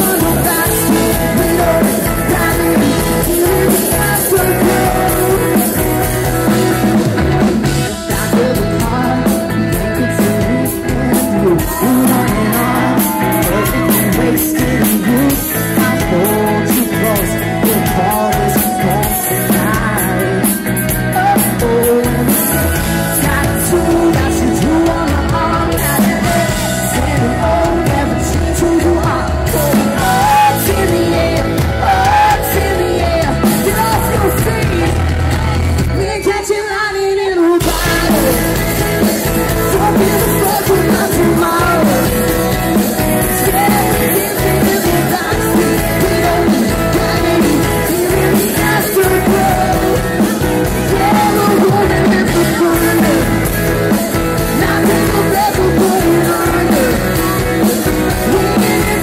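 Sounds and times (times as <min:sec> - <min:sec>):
drum kit: 0:00.0 - 0:36.6, 0:37.5 - 0:59.0
electric guitars: 0:00.0 - 0:59.0
man singing lead vocals: 0:00.0 - 0:59.0.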